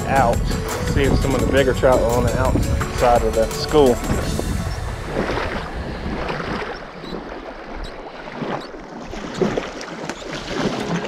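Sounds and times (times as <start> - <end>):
small waves lapping on shore: 3.7 - 11.0.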